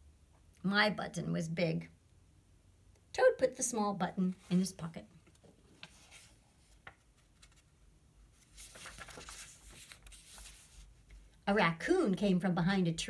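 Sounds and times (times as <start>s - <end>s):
book page turning: 5.3s - 11.3s.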